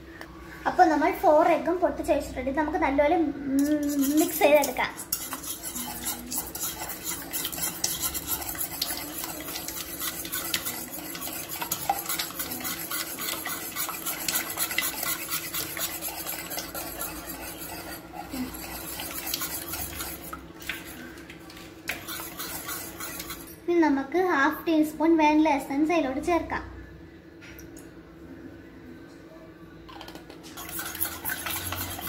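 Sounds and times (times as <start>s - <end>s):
metal whisk clinking in a pot: 3.6s - 21.0s, 21.9s - 23.6s, 30.6s - 32.0s.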